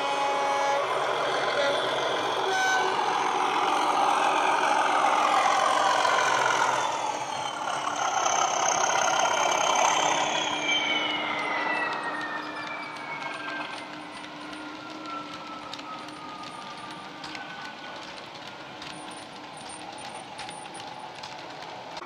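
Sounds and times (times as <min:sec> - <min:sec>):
high falling whistle: 0:00.0 - 0:17.6
model train diesel engine sound: 0:00.0 - 0:22.0
wagon wheels clicking on track: 0:00.0 - 0:22.0.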